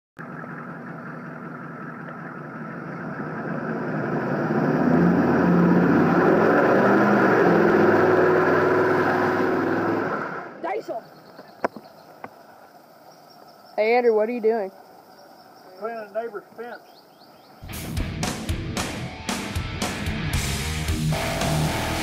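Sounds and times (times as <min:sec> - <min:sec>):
wheels spinning in mud: 0:00.2 - 0:10.6
truck engine revving hard: 0:03.0 - 0:10.6, 0:17.7 - 0:22.0.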